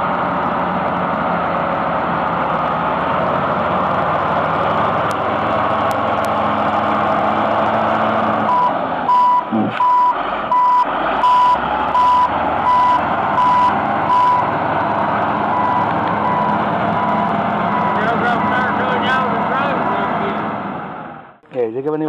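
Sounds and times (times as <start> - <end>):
diesel engine running: 0.0 - 21.4
reversing alarm beeping: 8.5 - 14.5, 15.4 - 20.2.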